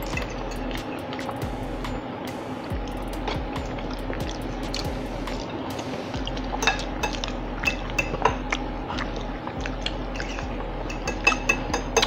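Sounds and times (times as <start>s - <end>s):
forks clinking on plates: 6.6s - 8.4s, 10.2s - 12.0s.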